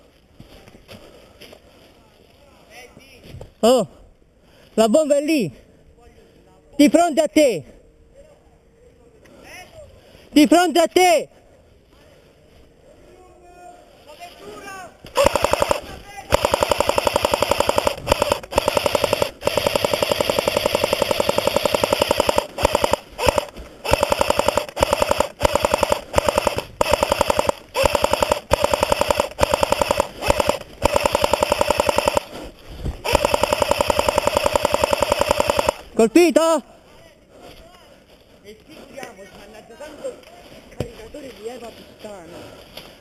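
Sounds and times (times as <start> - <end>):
airsoft rifle firing full-auto: 15.1 - 32.4, 33.0 - 35.9.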